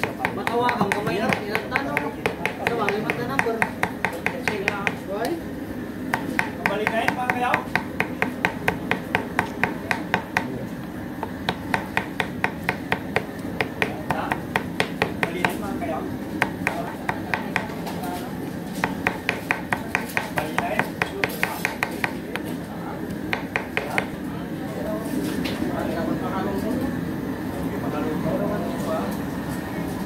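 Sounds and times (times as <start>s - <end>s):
knife chopping on wooden board: 0.0s - 5.0s, 6.1s - 10.6s, 11.2s - 15.6s, 16.4s - 17.9s, 18.8s - 22.5s, 23.2s - 24.2s.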